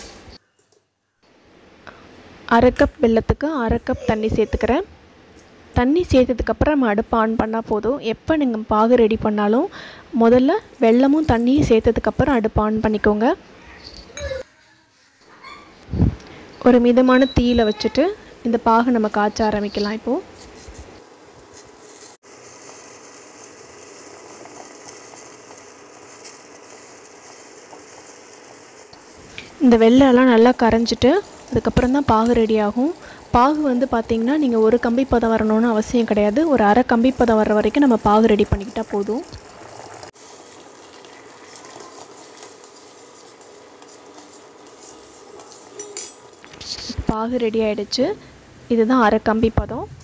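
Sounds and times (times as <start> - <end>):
small crackles: 20.4 - 29.6, 37.2 - 47.0
syrup boiling in a pot: 22.2 - 46.4
spoon stirring: 40.3 - 46.9.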